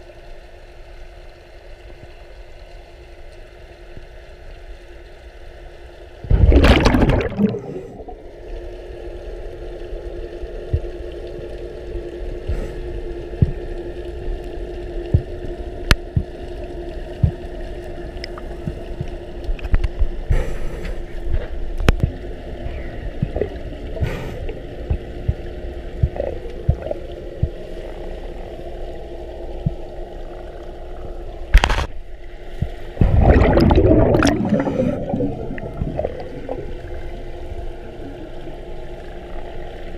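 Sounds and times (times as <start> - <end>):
steady low underwater hum: 0.0 - 39.9
burst of exhaled bubbles: 6.2 - 8.3, 22.0 - 24.7, 26.0 - 27.6, 33.0 - 37.4
underwater rush of bubbles: 6.2 - 39.9.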